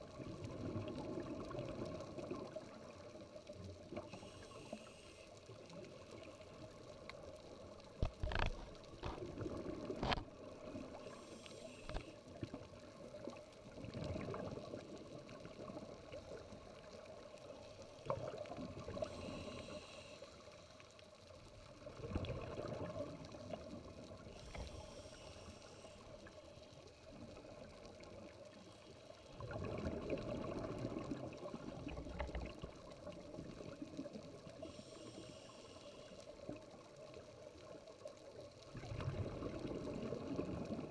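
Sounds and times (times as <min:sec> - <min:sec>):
bubbling gurgle: 0:00.0 - 0:04.5, 0:07.9 - 0:17.3, 0:17.9 - 0:19.4, 0:21.7 - 0:25.0, 0:29.2 - 0:34.8, 0:36.4 - 0:40.9
underwater water wash: 0:00.0 - 0:40.9.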